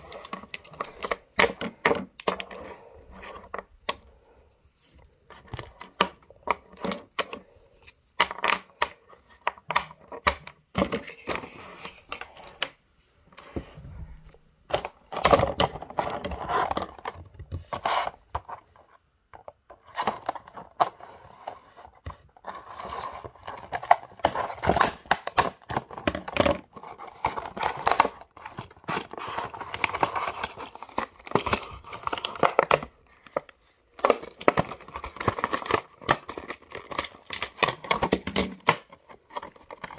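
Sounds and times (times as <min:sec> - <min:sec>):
plastic packaging crinkling and tearing: 0:23.2 - 0:39.9.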